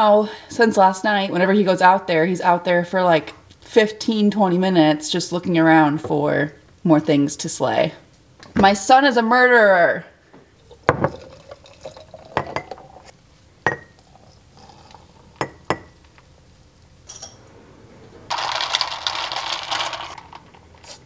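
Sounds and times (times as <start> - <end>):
drinks pouring over ice: 10.6 - 13.1, 18.3 - 21.0
glass jars clinking: 10.8 - 13.0, 13.6 - 14.0, 15.4 - 16.0, 17.1 - 17.4
ice rattling in glass: 18.3 - 20.4.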